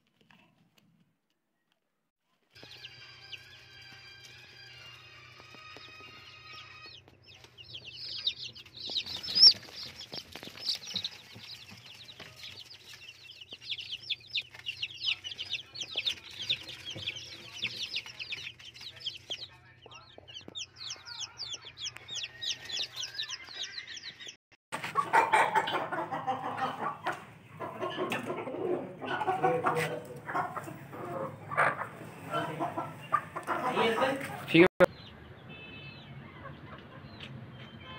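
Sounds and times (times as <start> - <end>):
chicks peeping: 2.6 - 37.9
chickens clucking: 5.4 - 34.7, 36.2 - 37.4.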